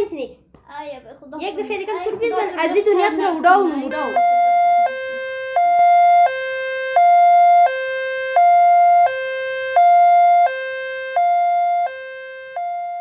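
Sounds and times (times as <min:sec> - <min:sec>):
two-tone emergency siren: 0:03.7 - 0:13.0.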